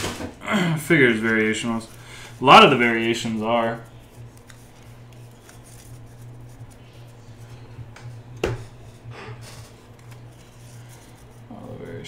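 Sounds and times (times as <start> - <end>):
steady low hum: 0.0 - 12.0
trading cards handled: 1.0 - 11.5.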